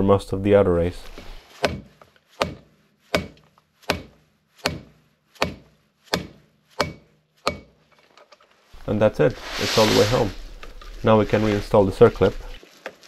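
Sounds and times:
hammer striking metal driver: 3.2 - 7.8.

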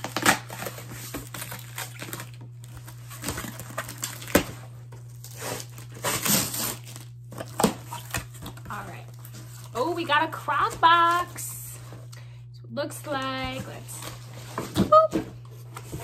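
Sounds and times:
cardboard rustling and tearing: 0.0 - 12.0, 13.3 - 16.0.

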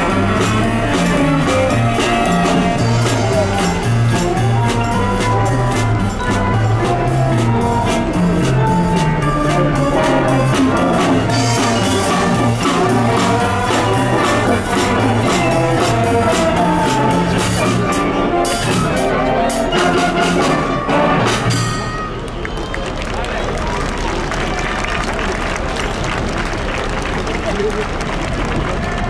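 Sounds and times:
wind band playing: 0.0 - 22.6.

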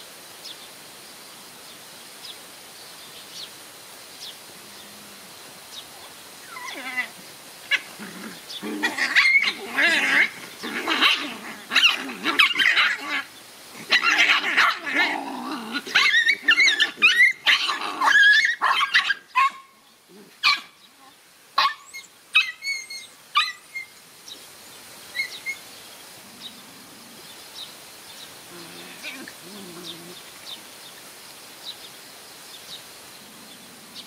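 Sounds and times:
puppies yipping barking and growling: 6.0 - 20.8, 21.6 - 23.9.

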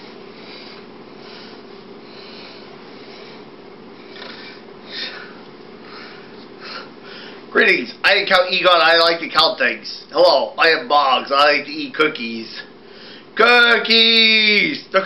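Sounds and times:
person breathing and sniffing: 0.0 - 7.5
low room hum: 0.0 - 15.0.

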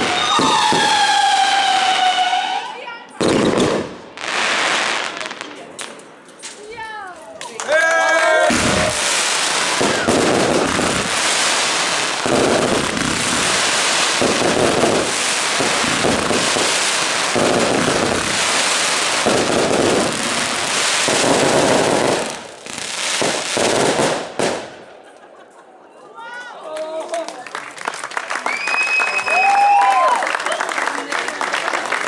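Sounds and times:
fireworks crackling: 0.0 - 7.6, 8.2 - 25.0.

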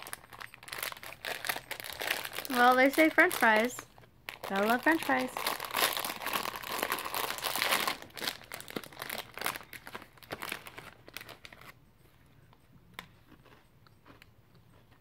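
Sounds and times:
snack bag crinkling: 0.0 - 11.8.

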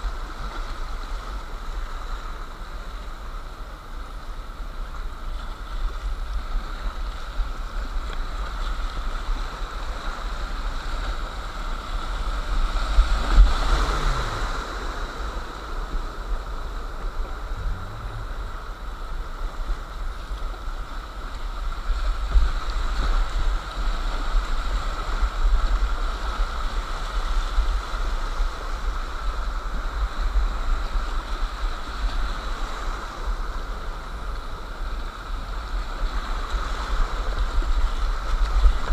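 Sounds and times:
low rumble on microphone: 0.0 - 32.5
river rushing over rocks: 0.0 - 38.9.

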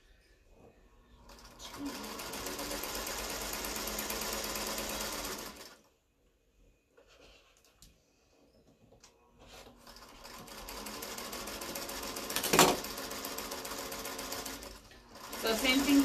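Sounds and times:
sewing machine stitching: 1.2 - 5.8, 9.8 - 16.0.

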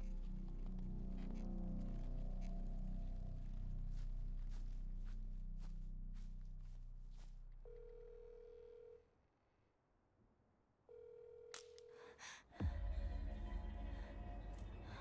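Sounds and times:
low drone: 12.6 - 15.0.

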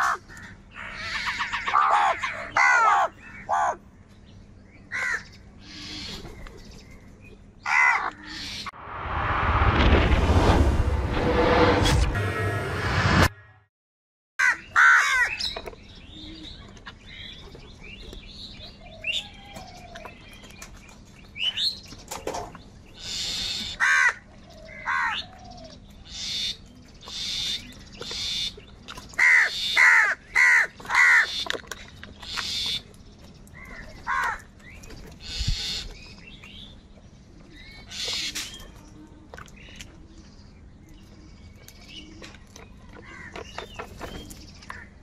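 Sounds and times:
crows cawing: 0.0 - 3.8, 4.9 - 6.1, 7.6 - 8.6, 14.4 - 15.4, 23.1 - 25.3, 29.2 - 31.5, 33.6 - 34.5, 43.0 - 43.5.

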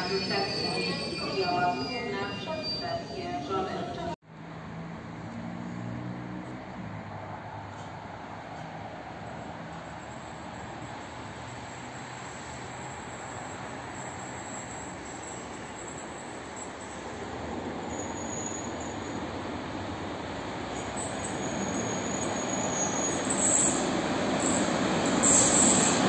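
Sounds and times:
faint wheel squeal: 0.0 - 4.2, 17.9 - 19.2, 20.7 - 26.0.

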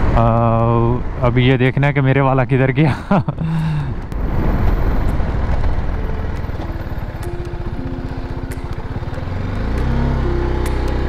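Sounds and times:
motorcycle engine pulsing: 4.0 - 11.0.

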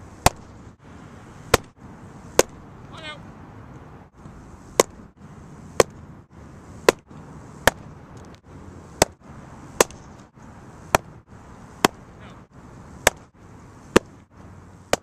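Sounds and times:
baseball popping into mitt: 0.2 - 0.5, 1.5 - 2.6, 4.7 - 5.0, 5.8 - 6.0, 6.8 - 8.4, 9.0 - 9.2, 9.8 - 10.3, 11.8 - 12.1, 13.0 - 13.3, 13.9 - 14.2.

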